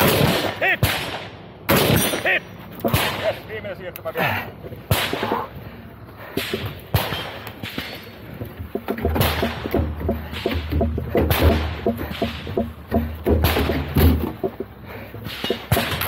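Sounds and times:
gunshots: 0:00.0 - 0:03.5, 0:04.9 - 0:05.4, 0:06.4 - 0:08.0, 0:09.2 - 0:09.7, 0:11.2 - 0:12.4, 0:15.3 - 0:16.0.

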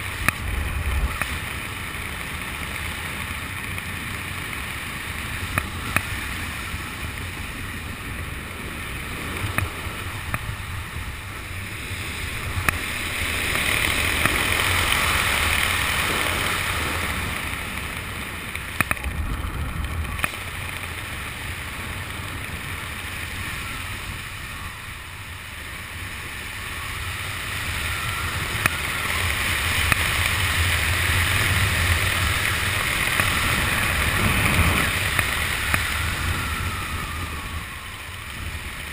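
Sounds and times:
wind rushing over microphone: 0:00.0 - 0:38.9
sharp clicks: 0:18.5 - 0:20.8.

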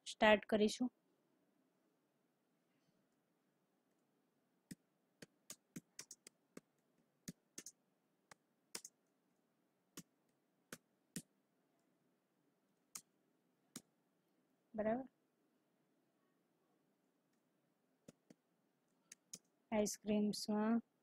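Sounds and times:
computer keyboard keys clicking: 0:05.4 - 0:06.4, 0:07.3 - 0:07.8, 0:08.7 - 0:09.0.

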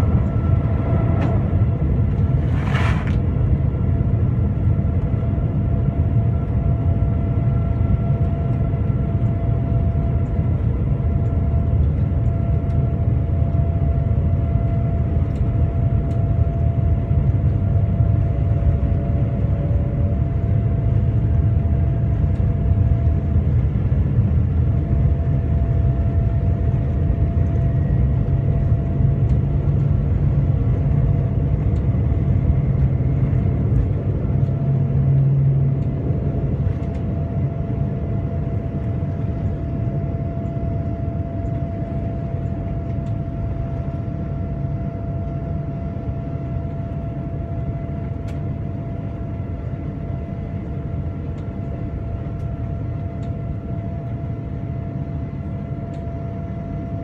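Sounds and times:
jet engine roar in cabin: 0:00.0 - 0:57.0
rushing air: 0:02.3 - 0:03.3
faint steady hum: 0:35.8 - 0:57.0.

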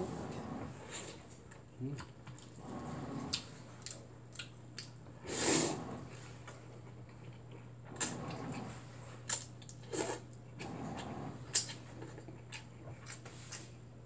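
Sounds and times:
washing machine hum: 0:00.0 - 0:14.0
noodle slurp: 0:05.2 - 0:06.1.

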